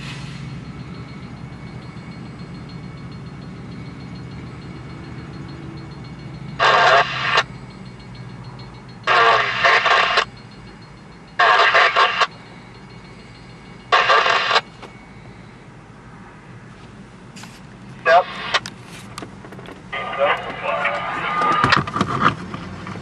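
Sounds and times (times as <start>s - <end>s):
radio static bursts: 6.6s - 7.5s, 9.1s - 10.3s, 11.4s - 12.3s, 13.9s - 14.7s, 18.0s - 18.6s, 20.0s - 21.7s.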